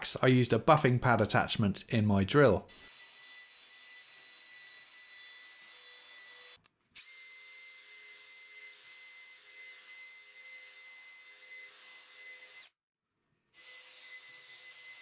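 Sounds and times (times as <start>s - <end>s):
drill motor whine: 2.7s - 12.7s, 13.6s - 15.0s.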